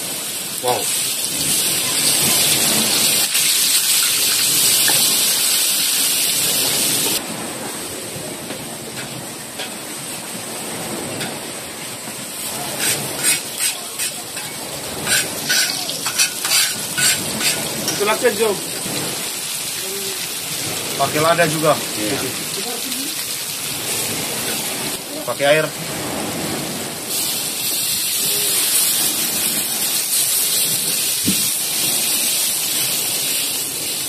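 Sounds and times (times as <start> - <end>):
paste sizzling in hot oil: 0.0 - 7.2, 12.4 - 24.8, 27.1 - 34.0
metal spatula scraping a wok: 12.8 - 18.0.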